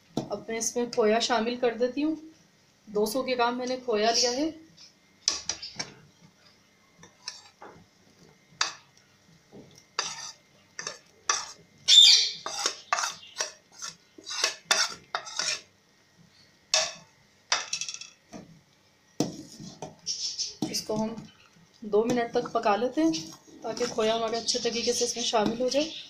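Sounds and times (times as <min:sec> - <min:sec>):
ladle scraping and clinking on pot: 0:07.0 - 0:07.6, 0:10.0 - 0:11.6, 0:12.4 - 0:15.7.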